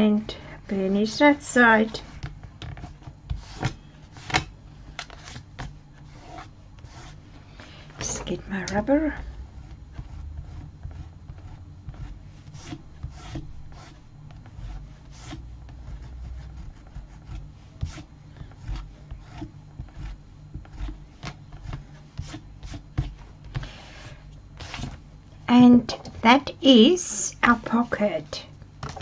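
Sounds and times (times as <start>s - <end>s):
eraser rubbing on cardstock: 6.0s - 7.2s, 9.6s - 25.0s.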